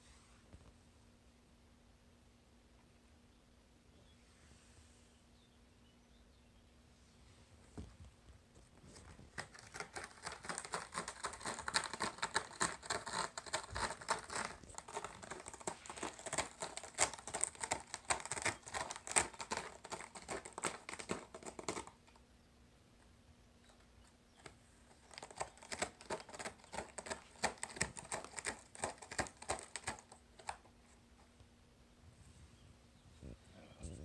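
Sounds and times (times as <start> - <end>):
cat scratching a scratching board: 8.6 - 22.0, 24.4 - 30.7.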